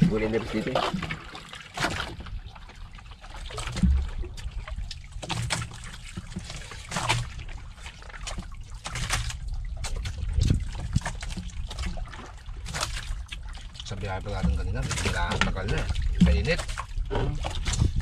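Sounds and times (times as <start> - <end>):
water lapping against boat hull: 0.0 - 18.0
low rumble: 3.6 - 5.9, 13.9 - 18.0.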